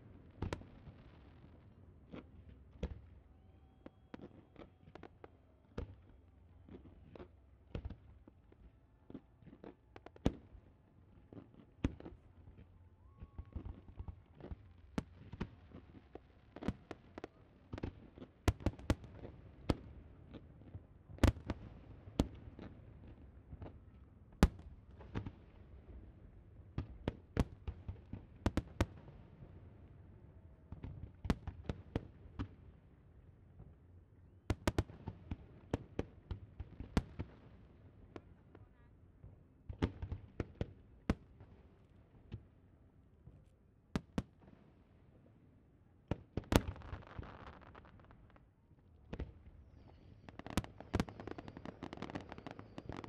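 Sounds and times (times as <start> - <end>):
fireworks bangs: 49.2 - 53.0.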